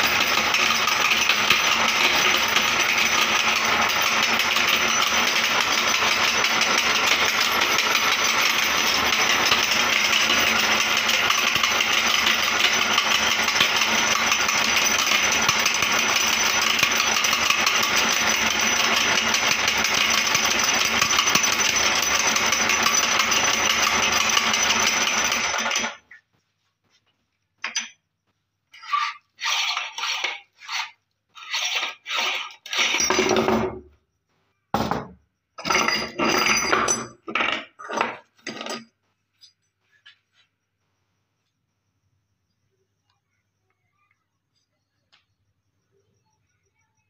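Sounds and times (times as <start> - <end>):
glass crunching in meat grinder: 0.0 - 26.0, 29.4 - 33.4.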